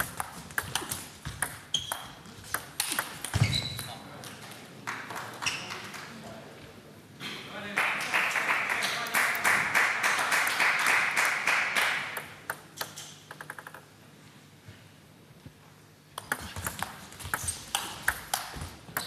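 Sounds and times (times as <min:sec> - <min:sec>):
table tennis ball bouncing: 0:00.0 - 0:03.9, 0:12.1 - 0:13.9, 0:16.2 - 0:19.0
table tennis rally: 0:00.0 - 0:06.7, 0:07.6 - 0:13.9, 0:16.1 - 0:19.0
spectators applauding: 0:07.8 - 0:12.2.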